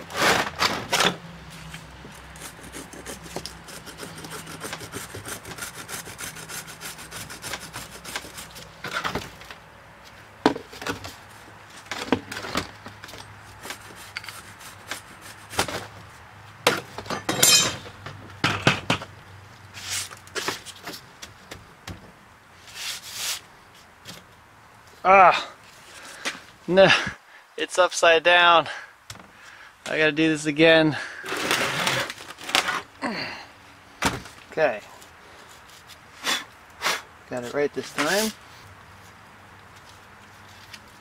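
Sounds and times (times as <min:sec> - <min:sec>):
gritty sand scraping: 0:00.0 - 0:09.0, 0:13.4 - 0:16.0, 0:19.7 - 0:20.9, 0:22.6 - 0:23.9, 0:29.9 - 0:33.0, 0:34.6 - 0:41.0.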